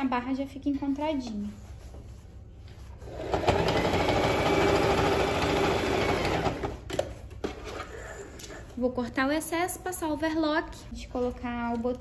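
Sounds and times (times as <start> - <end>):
sewing machine stitching: 3.1 - 6.8.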